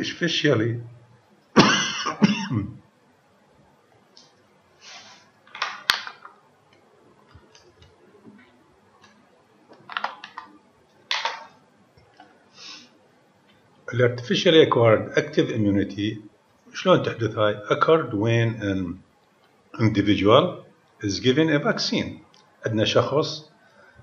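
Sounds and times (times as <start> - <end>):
man clearing his throat: 1.6 - 2.8
short noisy breaths: 12.5 - 13.0.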